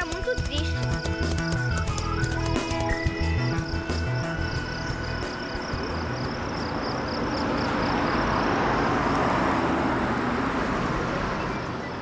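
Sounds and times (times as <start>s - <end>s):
truck driving past: 3.6s - 12.0s.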